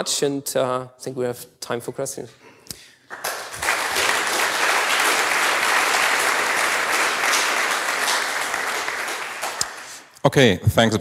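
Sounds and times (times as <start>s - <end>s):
audience clapping: 3.0s - 10.1s.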